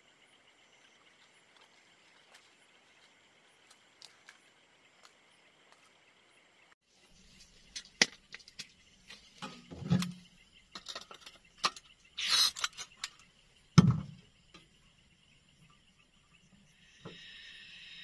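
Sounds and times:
metal canister clunking: 0:09.4 - 0:11.8, 0:13.8 - 0:14.2.

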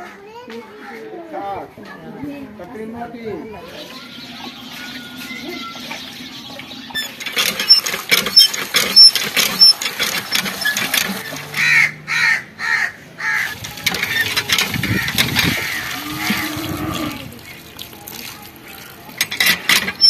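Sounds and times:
metal clatters: 0:07.0 - 0:11.6, 0:13.5 - 0:16.5, 0:19.1 - 0:20.0
water pouring into metal colander: 0:07.1 - 0:11.6, 0:13.5 - 0:20.0
bird cawing: 0:11.5 - 0:17.6.

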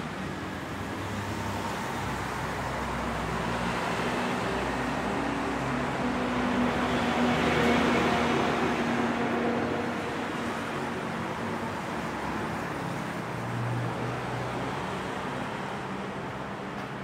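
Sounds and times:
bus engine hum: 0:00.0 - 0:17.0
passing cars: 0:00.0 - 0:17.0.

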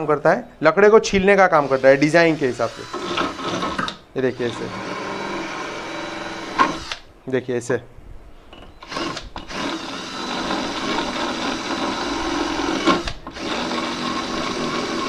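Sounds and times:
drill with rasp bit shaving wood: 0:01.6 - 0:07.0, 0:08.8 - 0:15.0.

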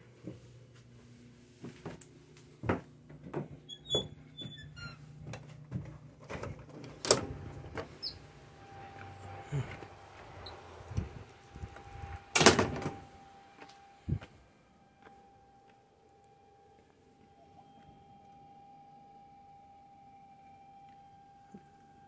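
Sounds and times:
metal door latch clicks and clunks: 0:12.3 - 0:13.0.

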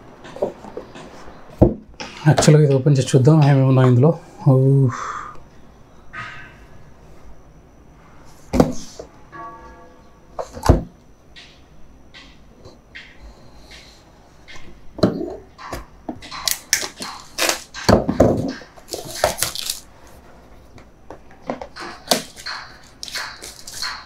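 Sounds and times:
cardboard and plastic packaging rustling: 0:16.3 - 0:20.2, 0:21.5 - 0:24.0.

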